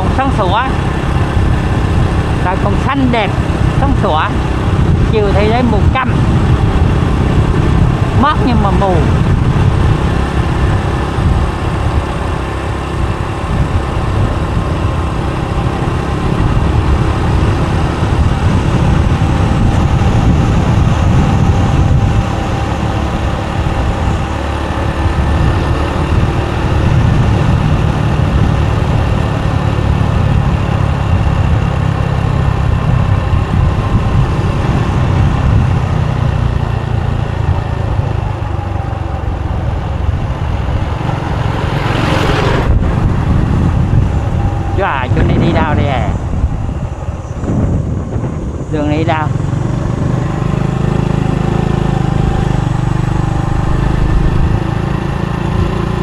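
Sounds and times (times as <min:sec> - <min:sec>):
motorbike engine running: 0:00.0 - 0:56.0
wind and road noise: 0:00.0 - 0:56.0.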